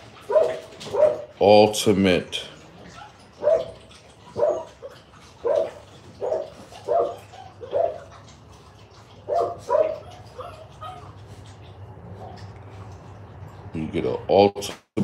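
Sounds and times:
dog barking: 0:00.2 - 0:01.3, 0:03.0 - 0:08.1, 0:09.2 - 0:11.2.

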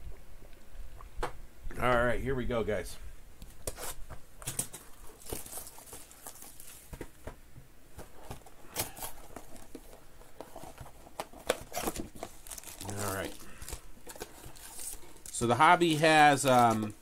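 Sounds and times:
plastic wrap crinkling and tearing: 0:03.6 - 0:07.0, 0:08.3 - 0:17.0.

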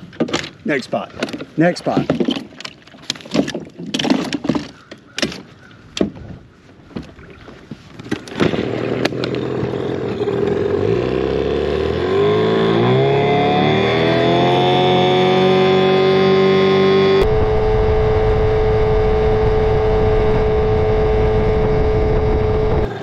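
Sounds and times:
outboard motor revving: 0:08.2 - 0:23.0.

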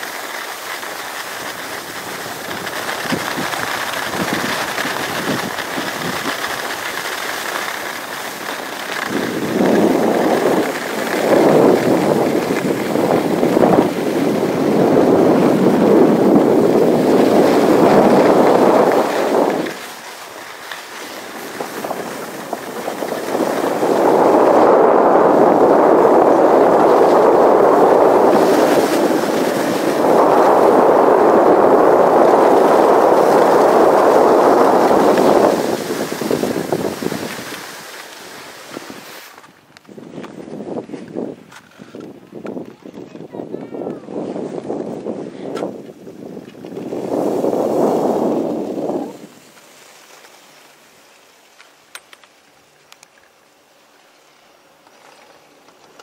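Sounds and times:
skis sliding over snow: 0:00.0 - 0:56.0
wind across microphone: 0:01.4 - 0:07.2, 0:08.0 - 0:20.0, 0:20.9 - 0:49.6.

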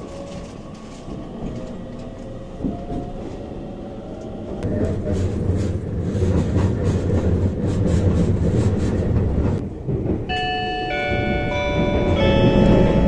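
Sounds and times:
train rumble with rail clicks: 0:00.0 - 0:13.0
bell-like chime melody: 0:10.3 - 0:13.0.

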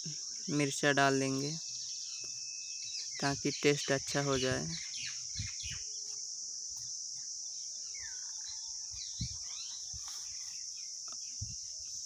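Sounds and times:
birds chirping: 0:00.0 - 0:12.0
high insect drone: 0:00.0 - 0:12.0.

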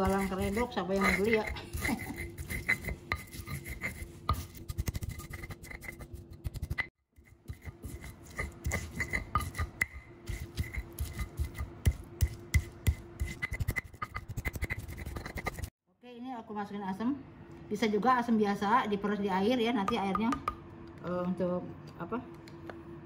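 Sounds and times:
stone pestle grinding on mortar: 0:00.0 - 0:15.7.

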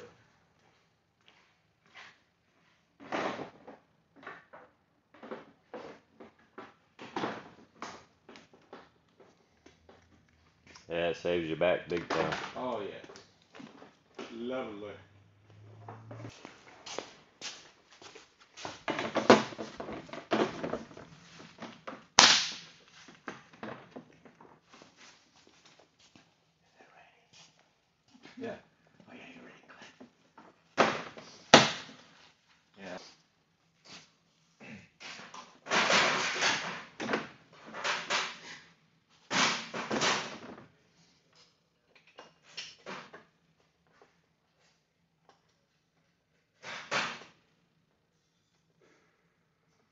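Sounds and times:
rustling and clattering of parts: 0:01.9 - 0:10.7, 0:15.7 - 0:26.3, 0:35.0 - 0:45.6
loud sharp snap of wrap: 0:22.2 - 0:22.8.

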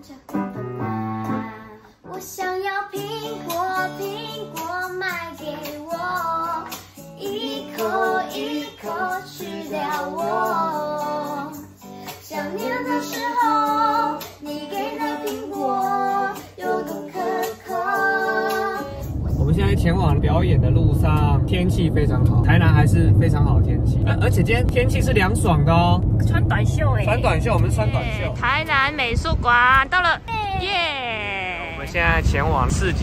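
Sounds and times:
girl singing: 0:00.0 - 0:19.2.

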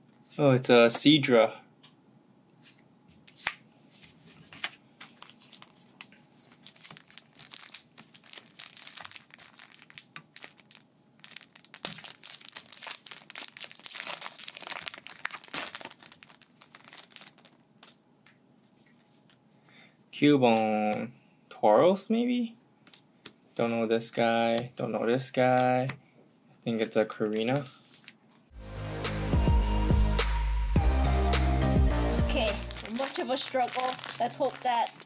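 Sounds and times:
crinkly wrapper being torn open: 0:05.2 - 0:18.0, 0:32.4 - 0:35.0.

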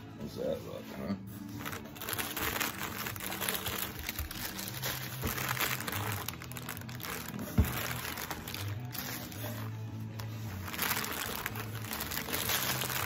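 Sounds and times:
plastic packing crinkling: 0:01.6 - 0:13.0.

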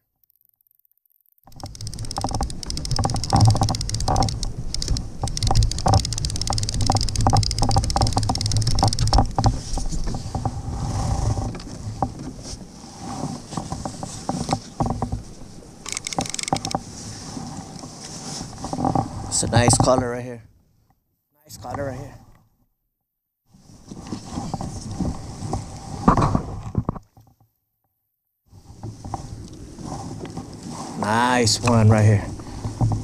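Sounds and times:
fishing reel clicking: 0:00.1 - 0:09.2, 0:15.8 - 0:16.8.

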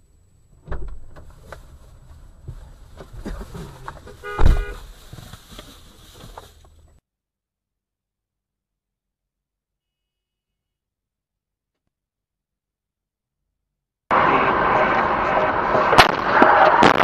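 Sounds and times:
low vehicle rumble: 0:00.0 - 0:07.0, 0:14.1 - 0:17.0
car horn blast: 0:04.2 - 0:04.9.

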